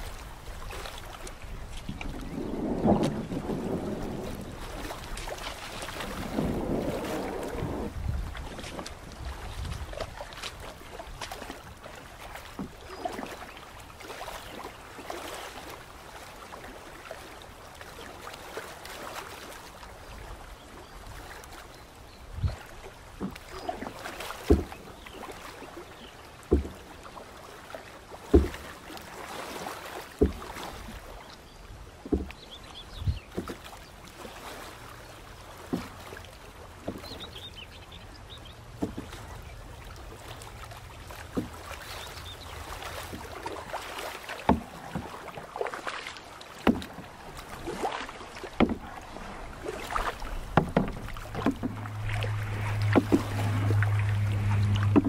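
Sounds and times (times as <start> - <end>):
paddle knocking canoe: 0.0 - 55.0
paddle splashing water: 0.0 - 55.0
steady low hum: 51.2 - 55.0.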